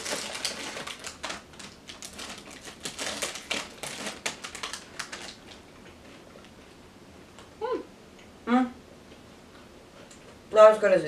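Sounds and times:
plastic pouch crinkling: 0.0s - 5.6s.

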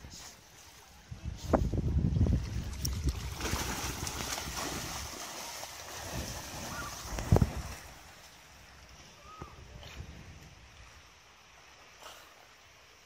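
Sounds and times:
wind rumbling on microphone: 0.9s - 5.2s, 5.9s - 8.1s, 8.8s - 11.1s
dog splashing through water: 2.6s - 7.9s.

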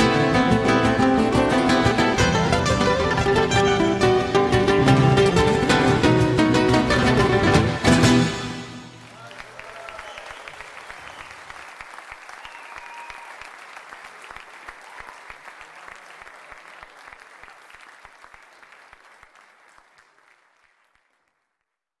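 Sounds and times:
crowd applauding: 8.1s - 21.8s.

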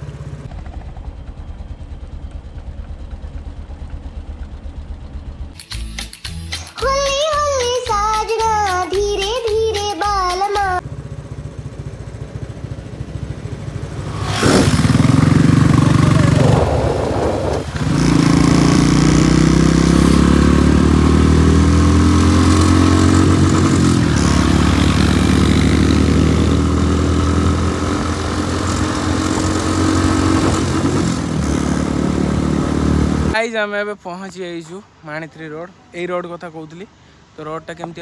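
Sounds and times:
motorcycle engine accelerating: 0.0s - 5.6s, 10.8s - 33.4s.

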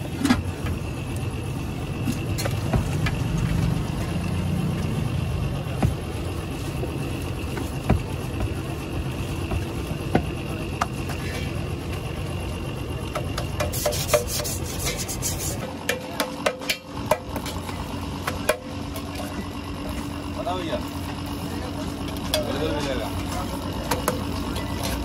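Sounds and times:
dough rubbing and patting: 13.2s - 15.6s
clicks and scratches: 13.2s - 16.2s.

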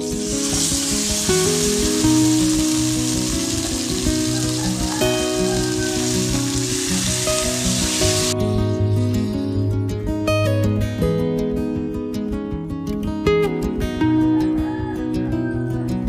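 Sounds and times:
food sizzling in a pan: 0.0s - 8.4s
background music: 0.0s - 16.0s.

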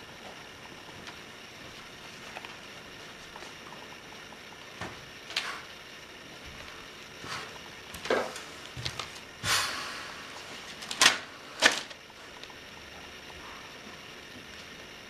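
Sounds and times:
footsteps on a stage floor: 8.0s - 9.2s
paper magazine rustling: 10.4s - 12.0s.

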